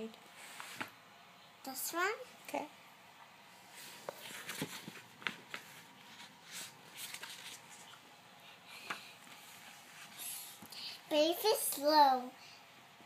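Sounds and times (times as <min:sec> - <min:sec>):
book pages rustling: 0:00.4 - 0:01.0, 0:03.7 - 0:08.2.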